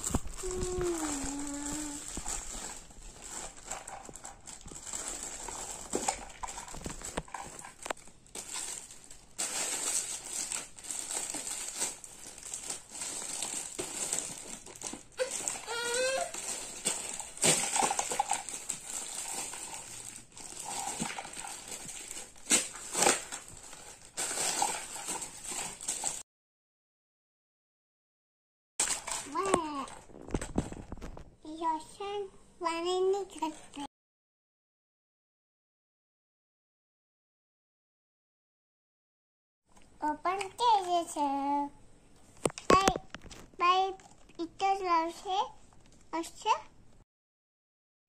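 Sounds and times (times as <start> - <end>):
cardboard rustling and scraping: 0.0 - 26.2, 28.8 - 31.3
plastic wrapping crinkling: 0.0 - 26.2, 28.8 - 31.3, 42.2 - 44.4.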